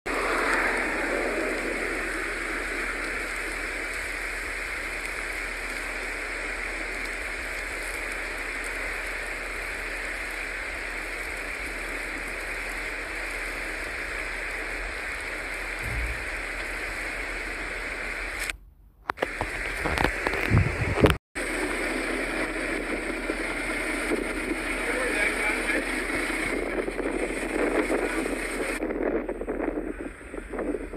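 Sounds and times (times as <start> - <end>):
wind: 0.1 - 30.9
loud low thumps: 15.8 - 16.6.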